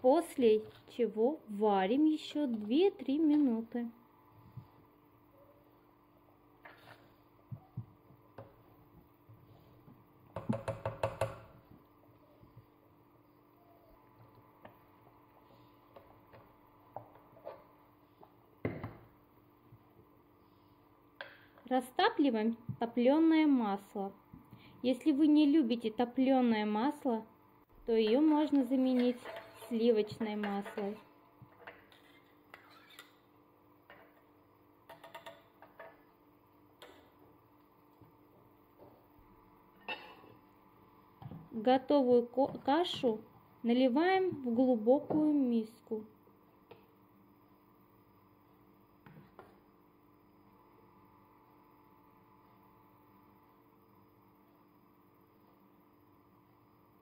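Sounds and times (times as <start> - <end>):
spatula clicking and tapping in pot: 34.9 - 35.9.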